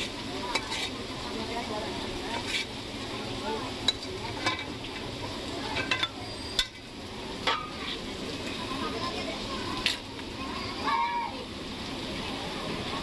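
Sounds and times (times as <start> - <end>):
sauce sizzling in a wok: 0.0 - 13.0
metal spoon clinking: 5.8 - 6.8.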